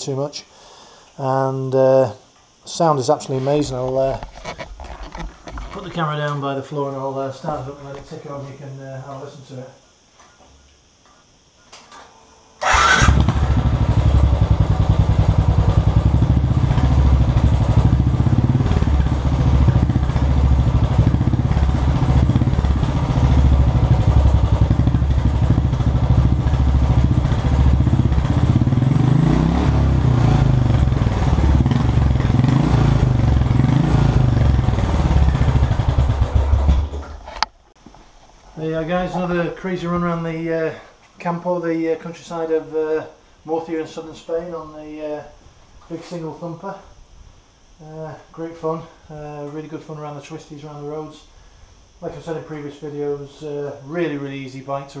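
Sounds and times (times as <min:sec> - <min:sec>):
engine revving: 0:12.6 - 0:37.0
motorcycle engine idling: 0:12.6 - 0:37.2.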